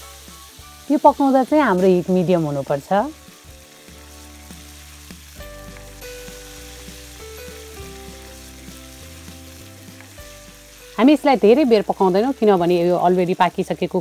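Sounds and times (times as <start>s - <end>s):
food sizzling in hot oil: 0.0s - 14.0s
soft background music: 0.0s - 14.0s.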